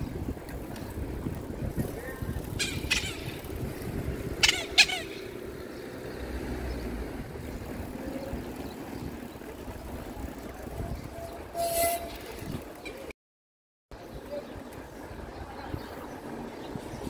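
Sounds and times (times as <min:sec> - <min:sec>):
wind on microphone: 0:00.0 - 0:05.5, 0:06.7 - 0:12.8
bicycle tyres on pavement: 0:00.0 - 0:13.1, 0:14.0 - 0:17.0.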